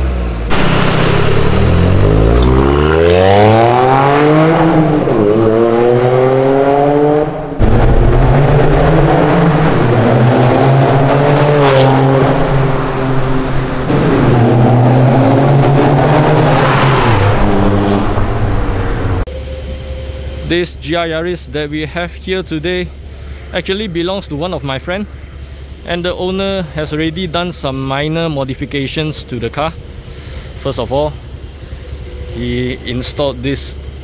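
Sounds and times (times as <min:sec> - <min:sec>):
turbocharged engine revving: 0:00.0 - 0:19.7.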